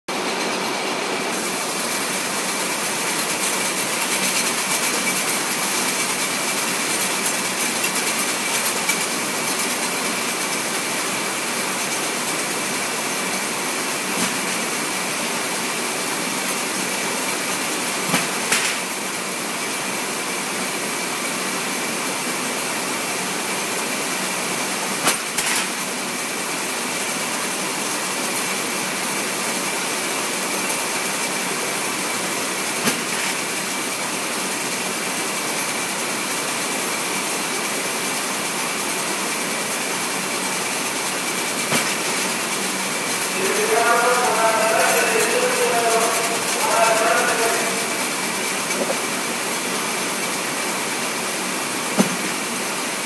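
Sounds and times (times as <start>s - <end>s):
conveyor machine hiss: 0.1s - 53.0s
sharp knocks: 52.0s - 52.3s.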